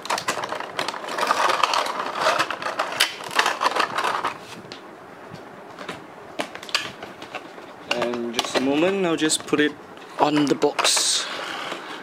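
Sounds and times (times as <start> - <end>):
plastic tray crackling: 0.0 - 4.4.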